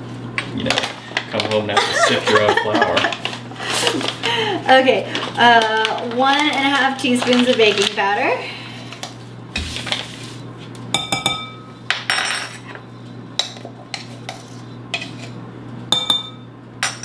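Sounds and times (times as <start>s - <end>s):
spoon scraping powder: 14.0s - 15.4s.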